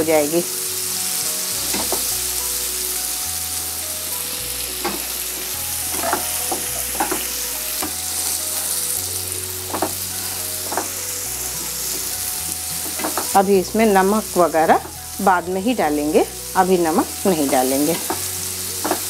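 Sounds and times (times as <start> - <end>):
onions sizzling in oil: 0.0 - 19.0
spatula scraping a pan: 4.7 - 13.4.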